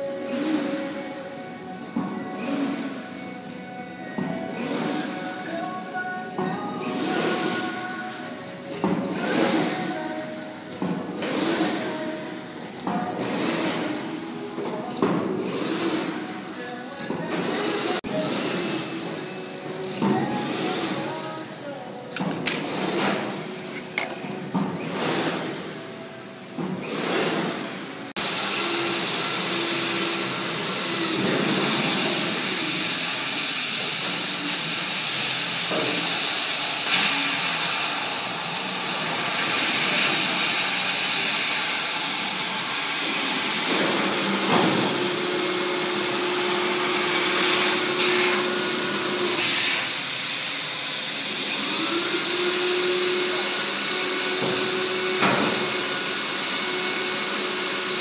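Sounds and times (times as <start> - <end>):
air blower rushing hiss: 0.0 - 3.7, 4.4 - 16.8, 22.3 - 58.0
laser head sweeping whir: 27.1 - 58.0.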